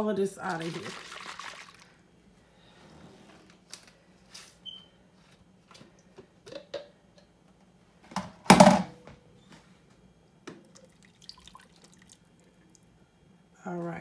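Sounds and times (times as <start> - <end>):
liquid shaken in cup: 0.5 - 1.9.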